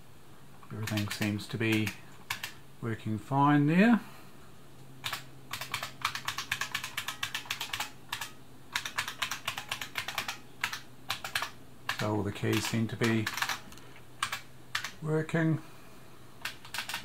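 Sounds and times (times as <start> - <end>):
keyboard keys clicking: 0.8 - 2.6, 5.0 - 15.0, 16.4 - 17.0.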